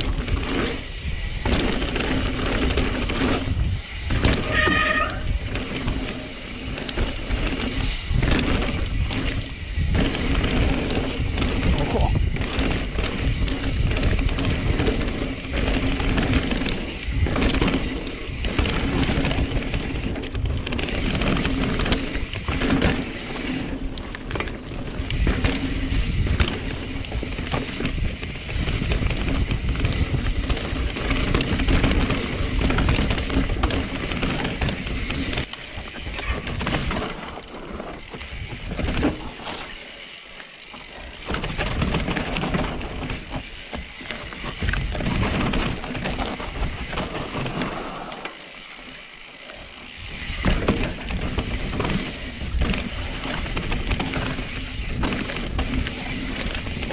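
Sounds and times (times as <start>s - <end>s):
wind rumbling on microphone: 0.0s - 39.6s, 41.2s - 47.9s, 49.9s - 56.9s
bike tyres rolling on dirt: 0.0s - 56.9s
freehub ratcheting: 0.0s - 56.9s.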